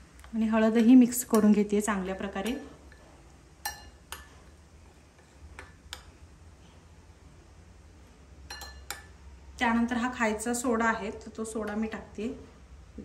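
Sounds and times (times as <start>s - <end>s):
spoon clinking against glass bowl: 3.6s - 4.3s, 8.5s - 9.1s.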